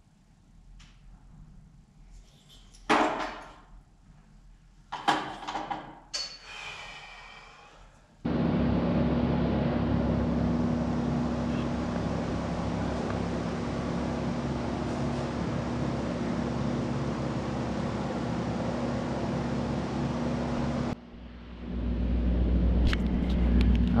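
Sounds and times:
steady hiss with low hum: 0.0 - 2.9, 3.7 - 5.0, 7.5 - 24.0
metal clanks and knocks: 5.0 - 6.4.

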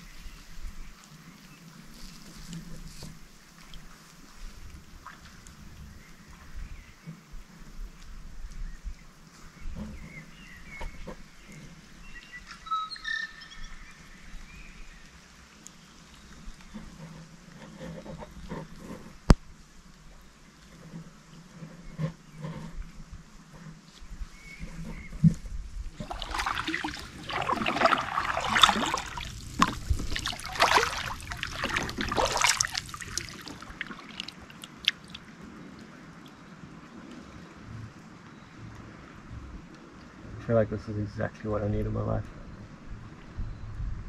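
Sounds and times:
birds singing whistled notes: 8.6 - 15.2, 24.3 - 25.2
paddle strokes splashing water: 14.1 - 38.2
water dripping off paddle: 26.0 - 37.3.

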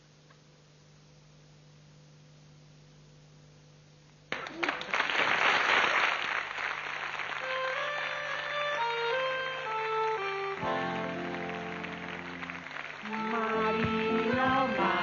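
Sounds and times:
faint electrical hum: 0.0 - 15.0
audience applause: 4.3 - 15.0.

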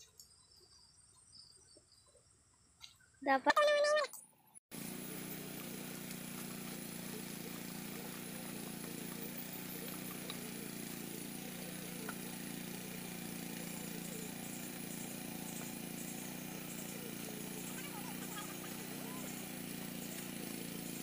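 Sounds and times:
distant engine drone: 4.7 - 21.0.

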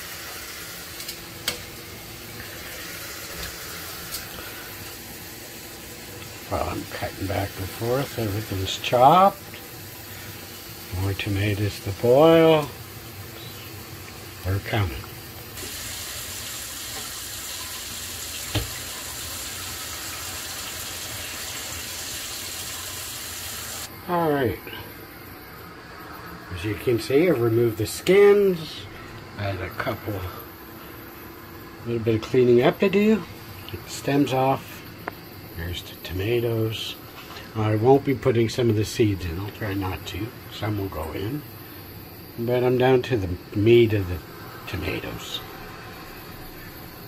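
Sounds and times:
tap running into steel sink: 18.4 - 18.8.

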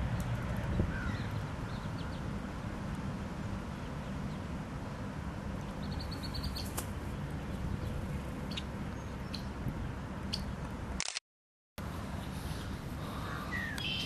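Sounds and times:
ducklings peeping: 5.8 - 6.8, 7.8 - 9.5.

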